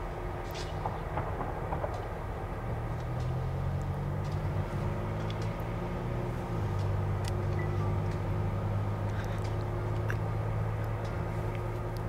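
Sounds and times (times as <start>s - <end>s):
diesel locomotive engine drone: 0.0s - 12.0s
faint sharp ticks: 5.2s - 5.7s, 6.7s - 8.3s, 9.1s - 12.0s.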